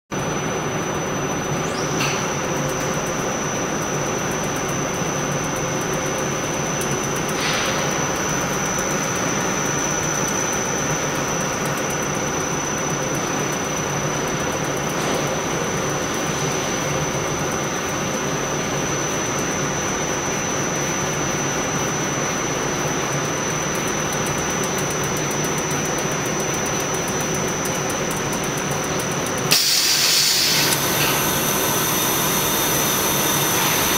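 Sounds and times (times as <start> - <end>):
high-pitched machine whine: 0.2 - 33.9
welding machine humming: 20.8 - 33.9.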